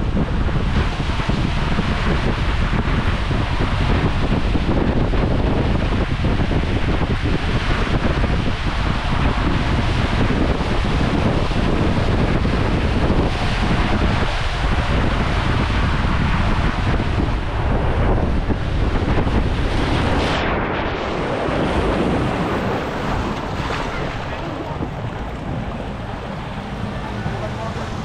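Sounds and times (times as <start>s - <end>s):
wind buffeting microphone: 0.0s - 28.0s
water rushing down a slide: 18.2s - 28.0s.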